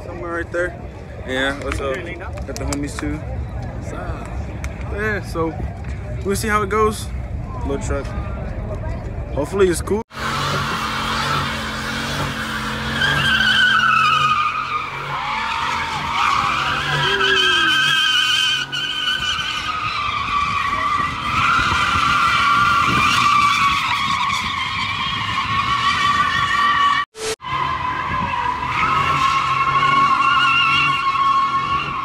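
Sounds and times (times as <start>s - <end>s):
tyres squealing: 10.7s - 32.0s.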